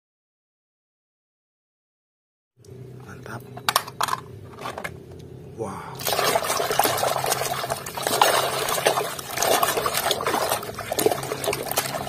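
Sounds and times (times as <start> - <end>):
hand sloshing in water: 6.0 - 12.0.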